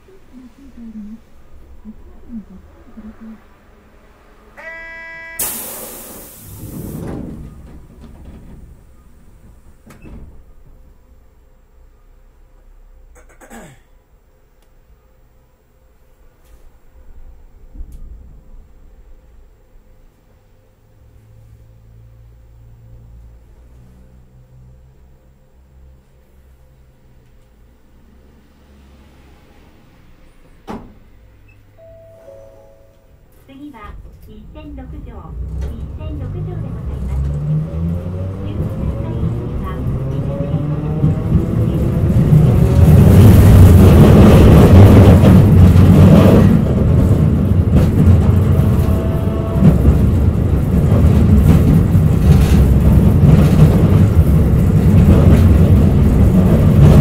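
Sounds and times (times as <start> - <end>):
doors sliding rumble: 0.0 - 4.6, 5.4 - 12.6, 15.8 - 32.0, 32.6 - 57.0
streetcar hum: 0.0 - 57.0
two-note electronic chime: 4.6 - 5.6, 31.8 - 33.4
short buzzer tone: 4.6 - 6.1
compressed air hiss of doors: 5.4 - 7.4.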